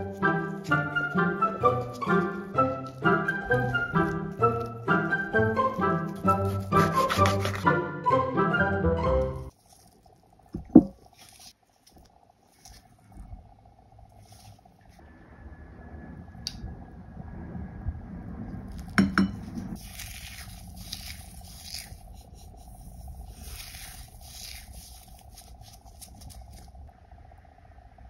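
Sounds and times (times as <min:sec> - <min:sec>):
crackly rustling of crushed seeds: 0:09.4 - 0:15.0, 0:19.8 - 0:26.9
low airplane rumble: 0:12.9 - 0:28.0.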